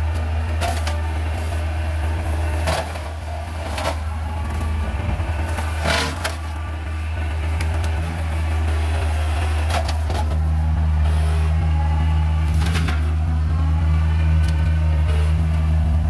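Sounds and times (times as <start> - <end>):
excavator diesel engine droning: 0.0 - 16.0.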